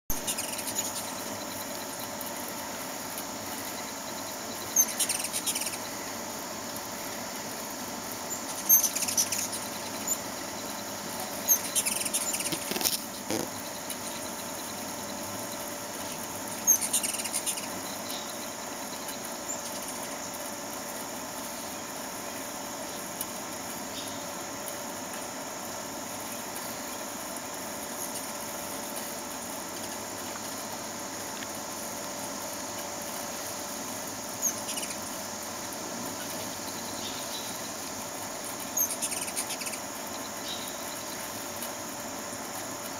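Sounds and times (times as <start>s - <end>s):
hummingbird chip calls: 0.1s - 2.1s, 4.0s - 6.0s, 8.2s - 15.5s, 16.1s - 20.0s, 34.3s - 35.3s, 38.7s - 41.2s
steady background hum: 0.1s - 42.9s.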